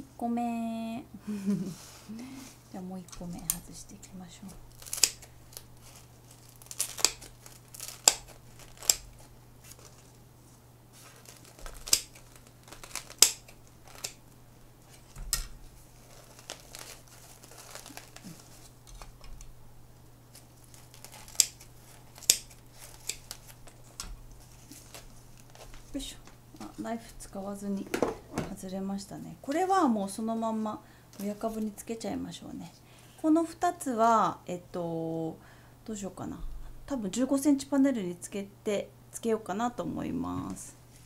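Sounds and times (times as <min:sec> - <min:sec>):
moss and roots crackling and tearing: 0:04.5 - 0:10.2, 0:10.9 - 0:19.4, 0:20.3 - 0:26.8.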